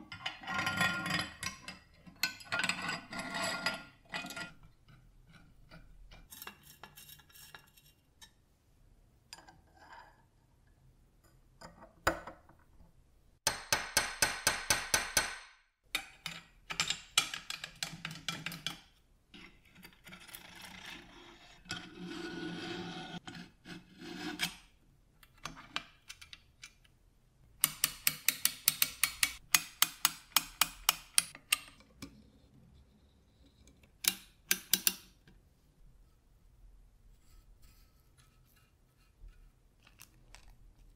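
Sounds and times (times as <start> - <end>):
metal scraping on metal: 0.2 - 8.4, 19.4 - 24.7.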